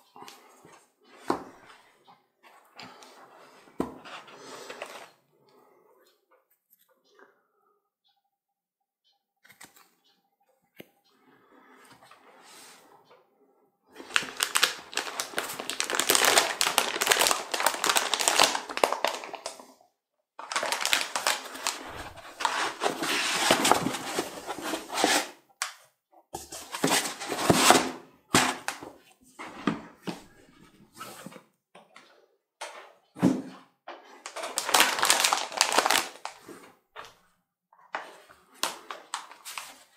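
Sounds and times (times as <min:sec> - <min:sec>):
plastic bag crinkling: 0:14.0 - 0:19.6, 0:20.4 - 0:25.2, 0:34.2 - 0:36.4.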